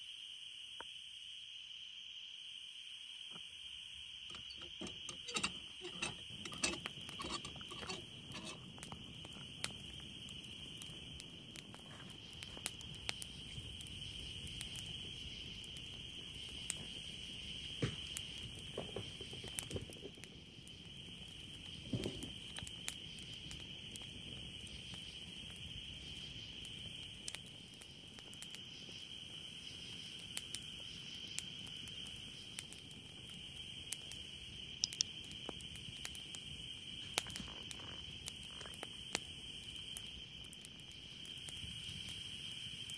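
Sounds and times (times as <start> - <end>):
night insects chirping: 0.0 - 42.9
campfire crackling and popping: 4.3 - 42.9.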